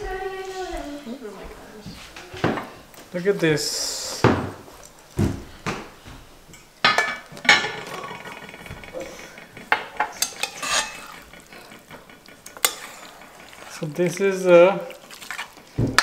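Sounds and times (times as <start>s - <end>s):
metal ladle scraping pot: 6.9s - 15.8s.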